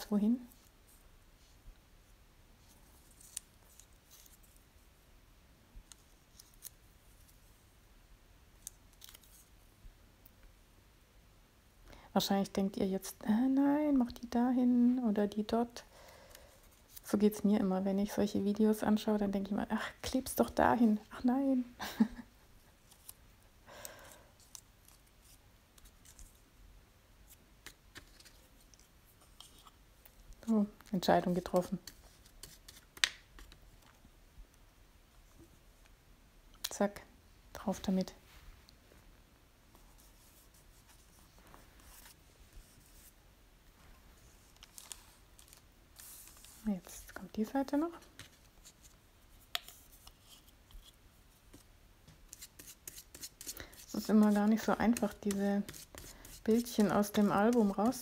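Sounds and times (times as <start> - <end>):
paper rustling: 27.3 - 29.8, 44.2 - 47.2
paper rustling and ticks: 52.3 - 58.0.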